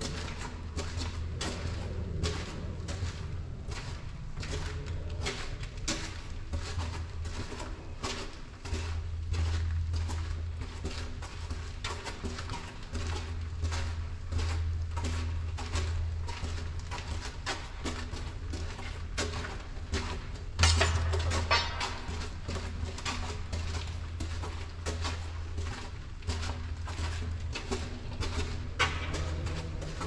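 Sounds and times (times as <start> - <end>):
low rumble: 0.0 - 7.9
footsteps on concrete: 0.0 - 30.0.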